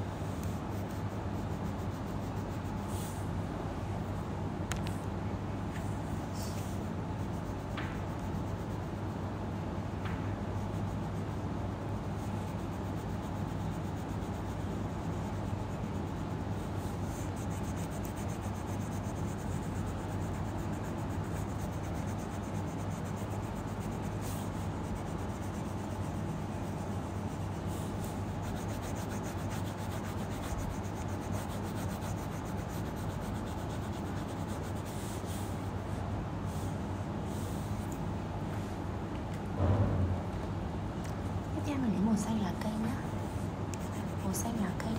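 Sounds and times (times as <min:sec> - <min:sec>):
steady low hum: 0:00.0 - 0:44.9
pencil rubbing on paper: 0:00.4 - 0:03.2, 0:06.4 - 0:09.2, 0:10.6 - 0:35.8, 0:43.7 - 0:44.9.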